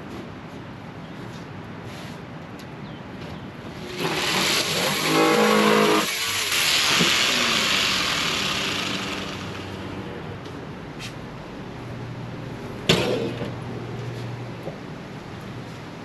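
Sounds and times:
jigsaw cutting hardboard: 3.8 - 9.7.

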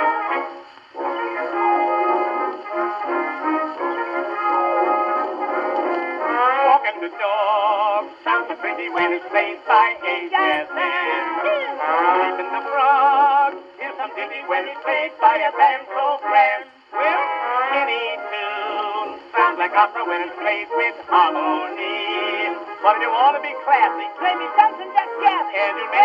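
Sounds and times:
man singing with vibrato: 6.0 - 26.0.

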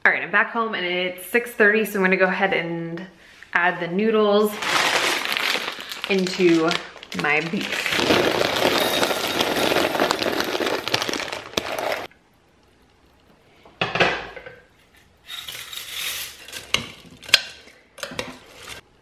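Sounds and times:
plastic bag crinkling: 4.4 - 12.1
dry noodles rattling into glass: 8.0 - 12.1.

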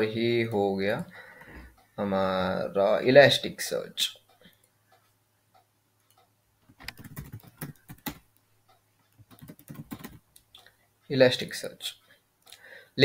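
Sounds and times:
keyboard keys clicking: 6.7 - 8.2, 9.1 - 10.5.

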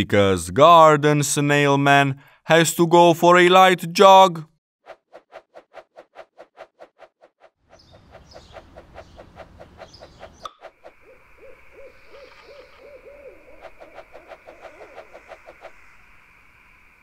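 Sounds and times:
owl hoots: 7.8 - 16.3
high chirring: 7.8 - 17.0.

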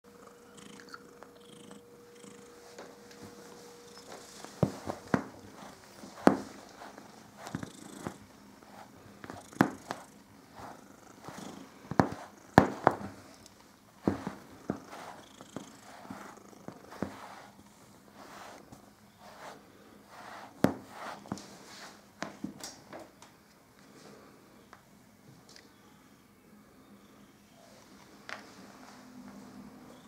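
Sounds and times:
cat purring: 0.1 - 18.6
brush on fur: 2.5 - 13.3, 14.0 - 22.0.

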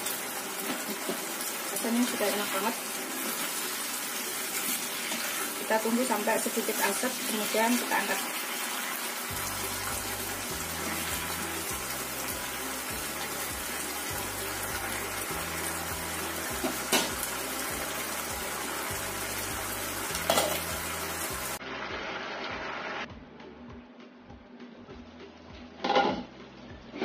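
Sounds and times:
sauce sizzling in a frying pan: 0.0 - 23.0
background music with bass: 9.3 - 27.0.

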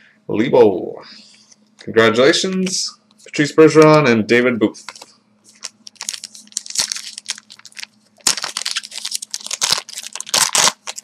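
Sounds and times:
wrappers crinkling and rustling: 4.8 - 11.0.

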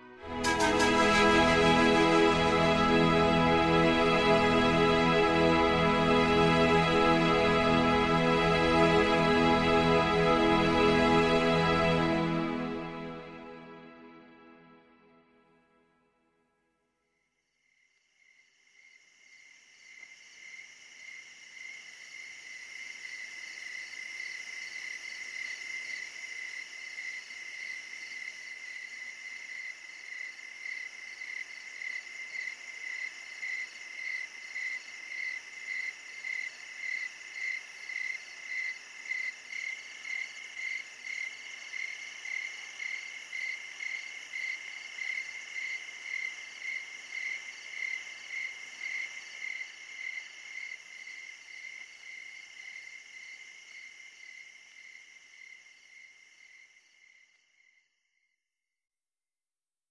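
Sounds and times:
insects chirping in a pulsing trill: 17.7 - 57.8.

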